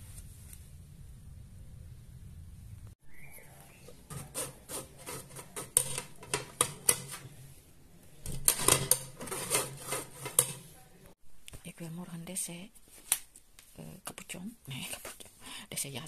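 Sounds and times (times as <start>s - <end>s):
spoon rasping pulp through sieve: 3.8s - 7.5s, 8.3s - 10.9s.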